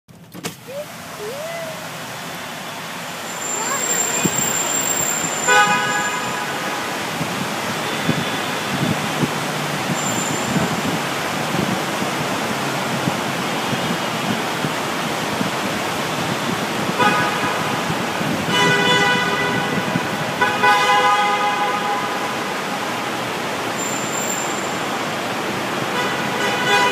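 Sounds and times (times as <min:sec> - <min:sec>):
traffic noise in tunnel: 0:00.1 - 0:26.9
car horns honking: 0:02.8 - 0:07.0, 0:17.0 - 0:17.8, 0:18.5 - 0:22.4, 0:25.9 - 0:26.9.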